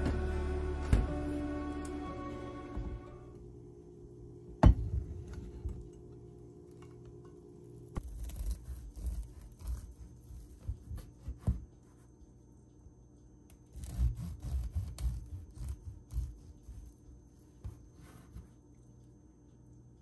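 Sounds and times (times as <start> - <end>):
serrated knife sawing bread: 8.0 - 11.4, 13.7 - 16.9.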